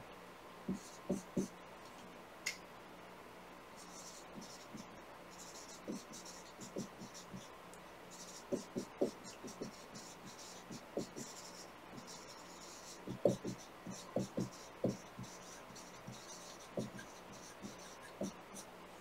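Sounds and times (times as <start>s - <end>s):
marker writing on whiteboard: 0.7s - 1.5s, 3.8s - 7.5s, 8.1s - 18.7s.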